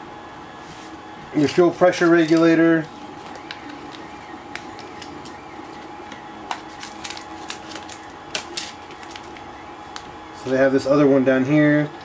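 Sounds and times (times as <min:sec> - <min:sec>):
plastic bag rustling and crinkling: 0:06.5 - 0:09.4.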